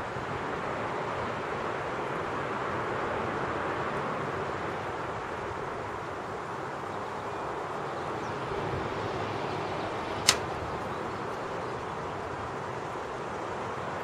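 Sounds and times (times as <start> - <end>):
outdoor background noise: 0.0 - 14.0
burning wood popping: 10.2 - 10.5.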